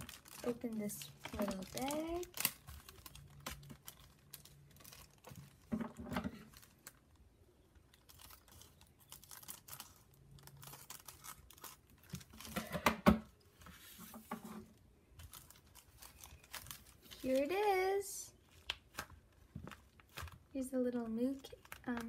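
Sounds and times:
paper and plastic bag crinkling: 0:00.0 - 0:12.8, 0:15.1 - 0:22.0.

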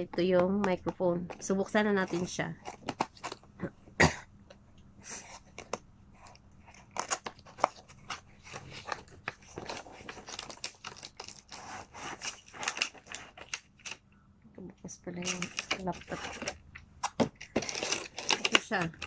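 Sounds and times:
plastic packaging crinkling: 0:01.3 - 0:03.5, 0:05.5 - 0:14.0, 0:15.1 - 0:19.0
cardboard tearing and scraping: 0:02.0 - 0:03.5, 0:05.0 - 0:14.0, 0:15.2 - 0:19.0.

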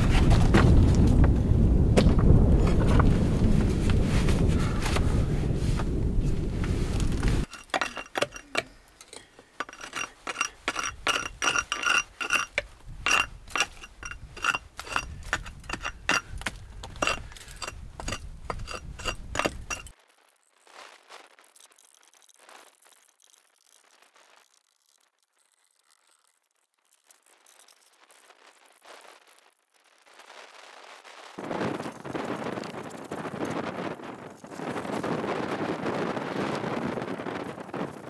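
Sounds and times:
metal tool striking stone: 0:07.4 - 0:19.9.

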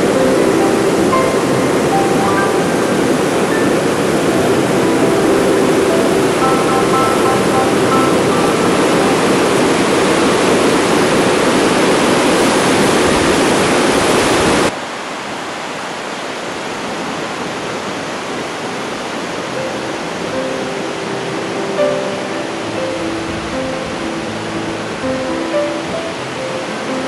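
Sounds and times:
faint music notes: 0:00.0 - 0:10.4, 0:19.5 - 0:27.0
steady hiss: 0:00.0 - 0:13.2
river rushing over a weir: 0:00.0 - 0:27.0.

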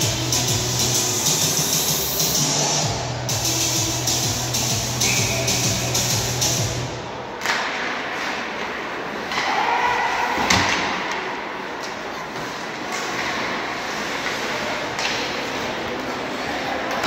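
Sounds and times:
skates and sticks on ice: 0:07.4 - 0:17.0.

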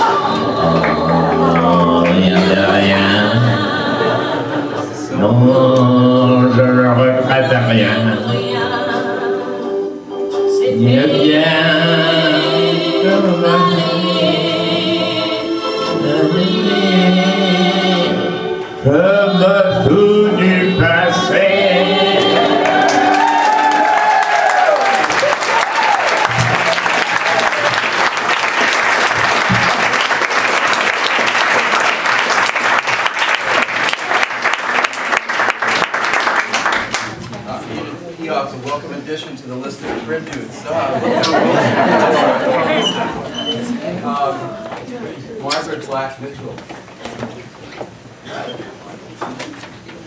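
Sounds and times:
audience applauding: 0:00.0 - 0:02.9, 0:22.2 - 0:37.2
voices singing with vibrato: 0:00.0 - 0:27.4.

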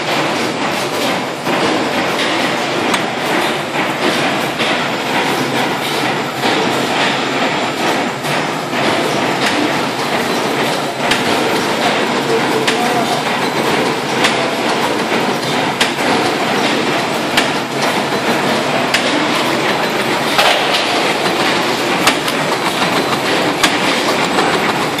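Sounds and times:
wire-forming machine clattering: 0:00.0 - 0:25.0.

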